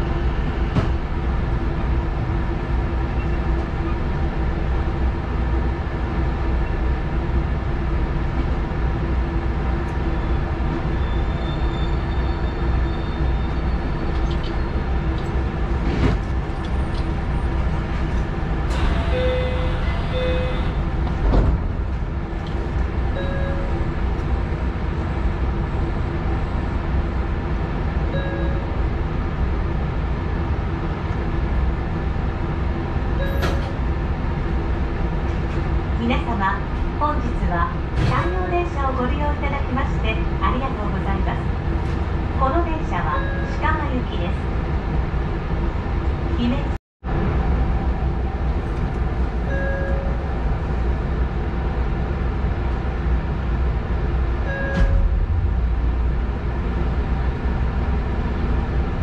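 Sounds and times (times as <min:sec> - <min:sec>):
train rumble and electrical hum: 0:00.0 - 0:59.0
short beeps: 0:18.8 - 0:20.8.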